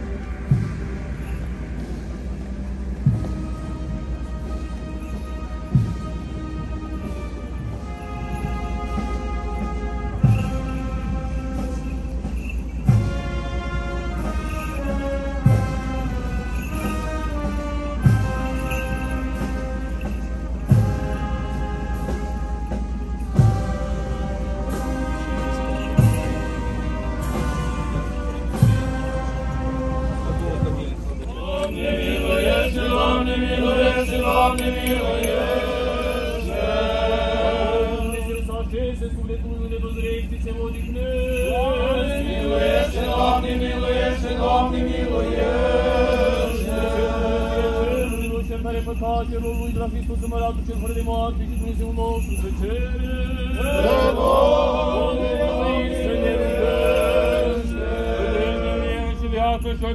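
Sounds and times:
men chanting a hymn: 25.0s - 59.9s.

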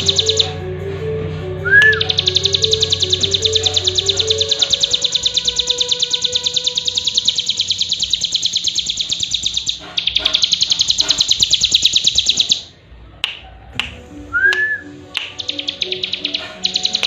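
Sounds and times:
bird trilling high notes: 0.0s - 0.8s, 1.6s - 12.8s, 14.3s - 17.0s
sharp clicks: 15.2s - 17.0s.

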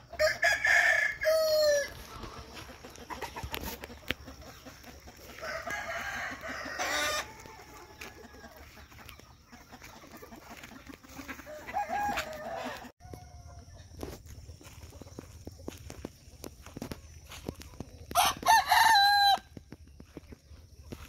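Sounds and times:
chickens clucking: 0.0s - 21.0s.

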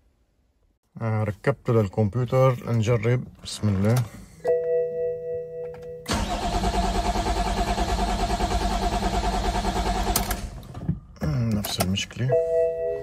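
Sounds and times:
engine cranking on starter: 6.1s - 10.6s.

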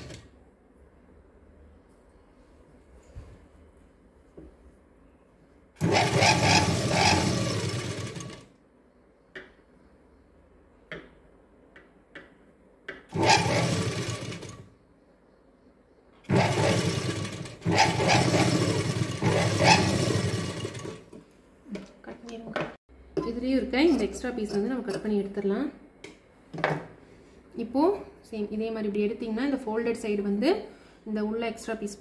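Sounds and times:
sewing machine stitching: 0.0s - 0.3s, 5.8s - 8.5s, 13.1s - 14.6s, 16.3s - 21.2s.

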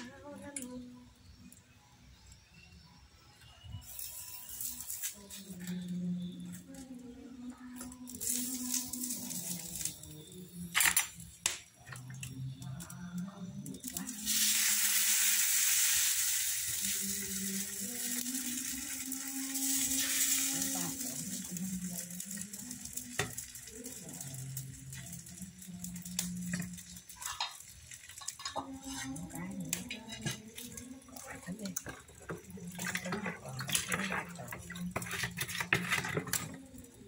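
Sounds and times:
batter sizzling in a pan: 8.1s - 10.5s, 13.8s - 37.0s
pan and cup clinking: 26.1s - 36.7s.

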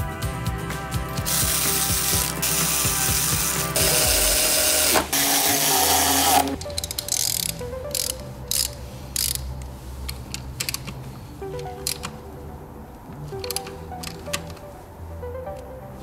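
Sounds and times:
cordless electric ratchet running: 1.2s - 9.4s
hand ratchet wrench clicking: 1.2s - 12.1s, 13.3s - 14.6s.

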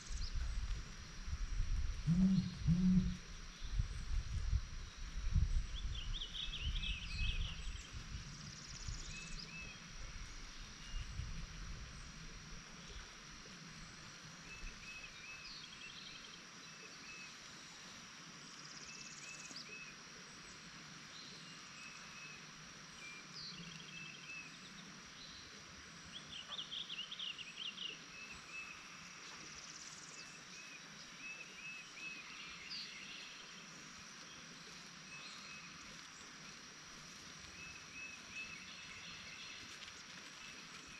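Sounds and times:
wind rumble on microphone: 0.0s - 13.1s
high insect drone: 0.0s - 40.9s.

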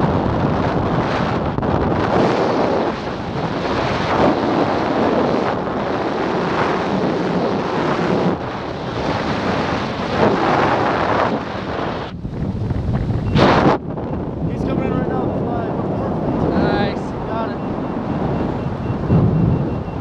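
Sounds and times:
wind rushing over microphone: 0.0s - 20.0s.

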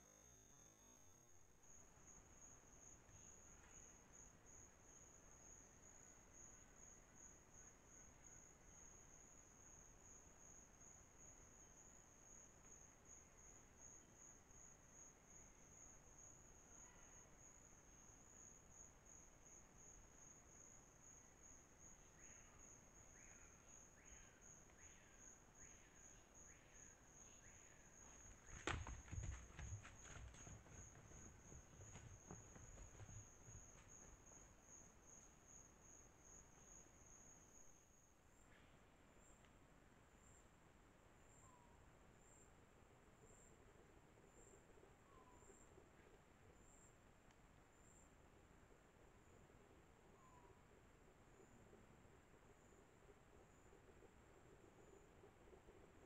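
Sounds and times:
night insects trilling: 0.0s - 38.0s.

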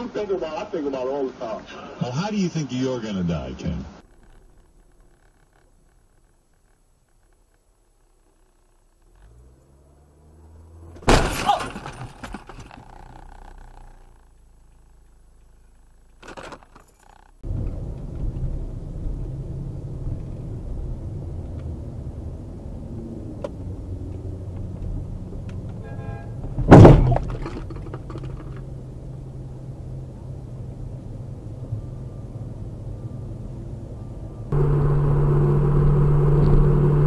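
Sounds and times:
road noise: 0.0s - 37.0s
car engine rumble: 3.9s - 37.0s
loud thud: 11.0s - 12.5s, 26.6s - 27.5s.

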